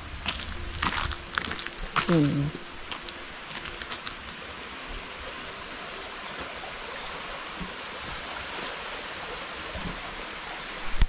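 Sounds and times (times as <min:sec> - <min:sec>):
even outdoor hiss: 0:00.0 - 0:11.0.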